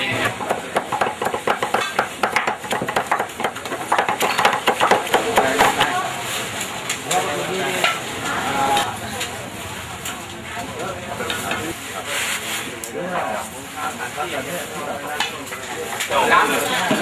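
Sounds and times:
cleaver chopping on wooden block: 0.3 - 5.8.

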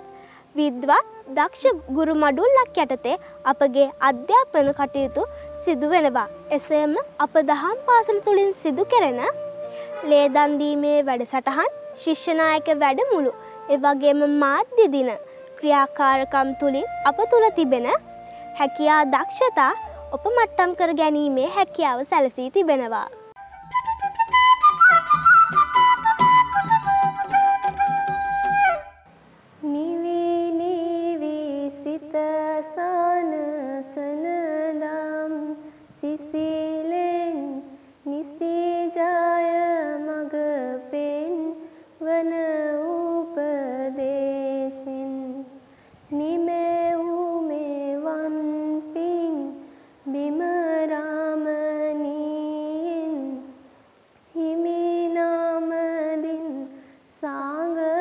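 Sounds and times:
breaths: 0.0 - 0.5, 3.2 - 3.4, 9.6 - 10.0, 13.4 - 13.6, 15.2 - 15.5, 18.2 - 18.6, 35.6 - 36.0, 37.7 - 38.0, 41.6 - 42.0, 45.6 - 46.1, 49.6 - 50.1, 56.7 - 57.1
girl singing: 0.0 - 23.2, 29.6 - 53.7, 54.3 - 58.0.

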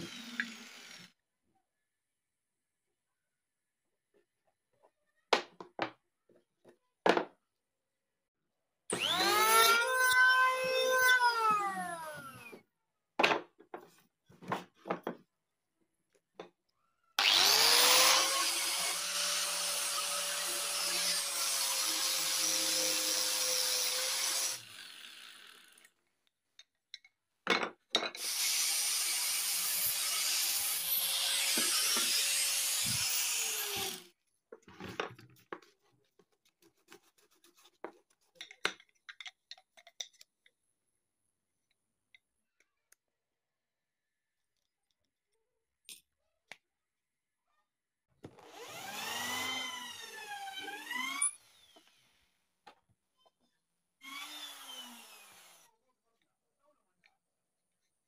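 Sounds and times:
power tool whining: 0.0 - 1.1, 8.9 - 12.6, 17.2 - 25.8, 28.2 - 34.1, 48.4 - 52.1, 54.0 - 55.6.

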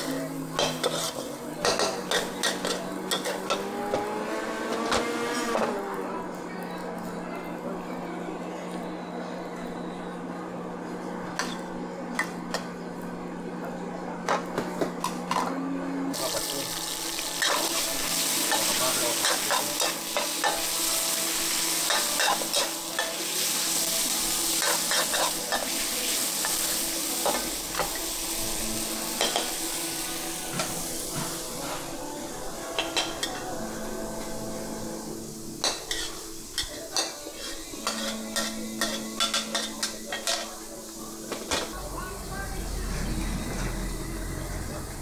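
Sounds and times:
food sizzling in a pan: 0.0 - 7.2, 16.1 - 45.0
metal spatula scraping pan: 35.7 - 40.5.

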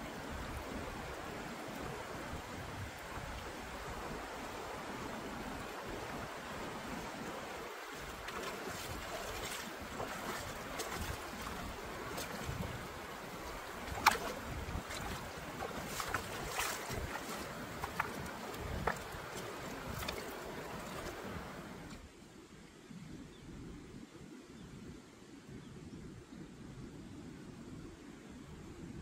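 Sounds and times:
wind on microphone: 0.0 - 22.1.

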